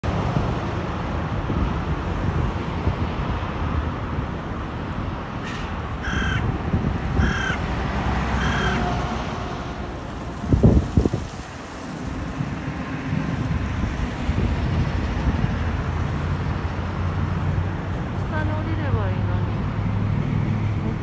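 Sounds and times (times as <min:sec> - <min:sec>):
crow cawing: 0:06.0 - 0:06.5, 0:07.2 - 0:07.7, 0:08.4 - 0:09.0.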